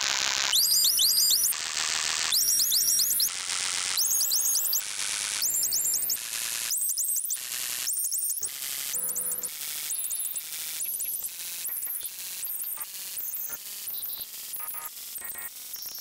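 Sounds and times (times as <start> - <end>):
electronic hiss and static: 8.6 - 16.0.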